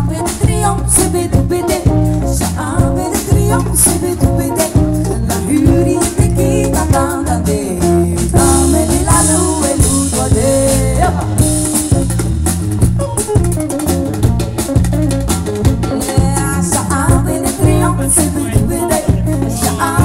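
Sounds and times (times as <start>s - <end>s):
woman singing: 0.0s - 11.8s, 15.9s - 20.0s
bass guitar: 0.0s - 20.0s
drum kit beat: 0.0s - 20.0s
electric guitar: 0.0s - 20.0s.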